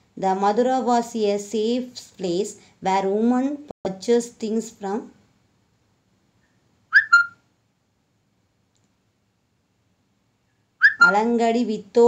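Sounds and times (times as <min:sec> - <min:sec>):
short high chirp: 0:06.9 - 0:07.4, 0:10.8 - 0:11.2.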